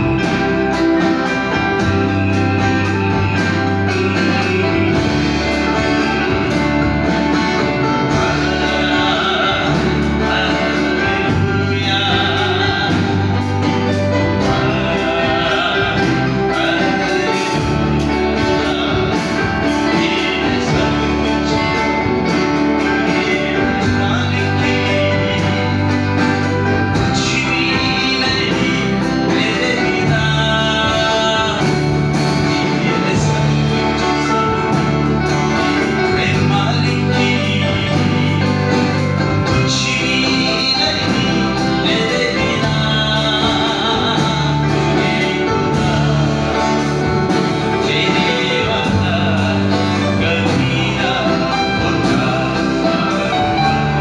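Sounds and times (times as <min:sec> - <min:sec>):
guitar: 0:00.0 - 0:54.0
man singing into a microphone: 0:00.0 - 0:54.0.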